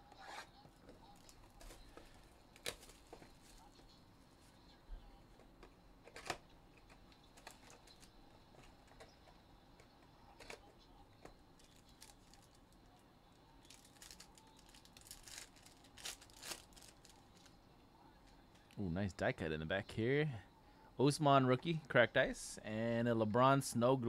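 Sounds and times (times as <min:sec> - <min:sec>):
foil pack crinkling: 0:11.6 - 0:12.7, 0:13.6 - 0:17.5.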